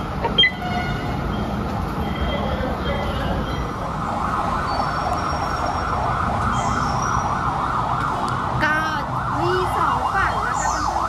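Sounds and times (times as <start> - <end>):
fast warbling emergency siren: 2.2 - 11.0.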